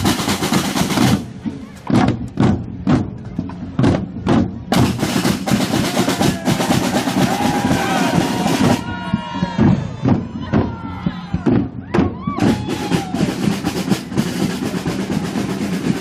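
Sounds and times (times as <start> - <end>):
snare drum roll: 0.0 - 1.3
marching drums beating: 0.0 - 16.0
crowd voices and shouts: 1.3 - 2.4, 5.7 - 16.0.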